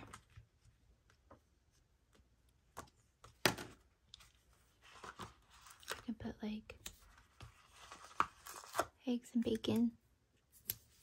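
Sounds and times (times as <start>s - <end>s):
pages turning: 4.1s - 6.1s, 6.8s - 8.9s.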